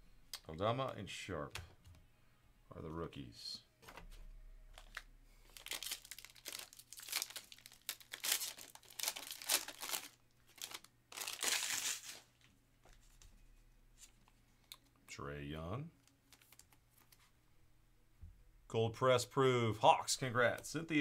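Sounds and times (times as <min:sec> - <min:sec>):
wrapper crinkling and tearing: 0:04.7 - 0:12.4, 0:16.0 - 0:17.1.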